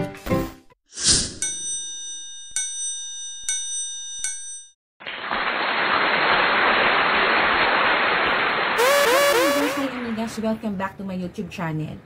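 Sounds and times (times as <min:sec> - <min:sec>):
loud steady hiss: 0:08.8 - 0:09.8.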